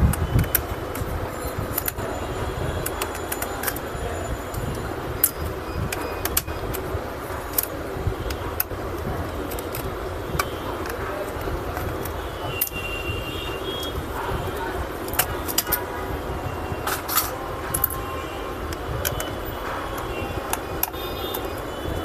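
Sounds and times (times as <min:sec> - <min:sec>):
steady background noise: 0:00.0 - 0:22.0
tool clicks and taps: 0:05.2 - 0:12.9, 0:15.0 - 0:15.9, 0:18.7 - 0:21.6.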